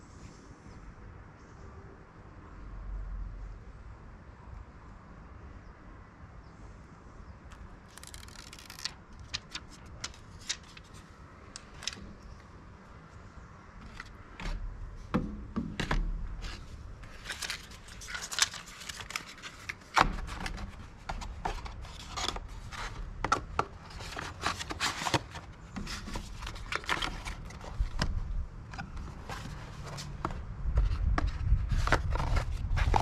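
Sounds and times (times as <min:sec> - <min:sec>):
boxes handled on wooden table: 0:13.8 - 0:33.0.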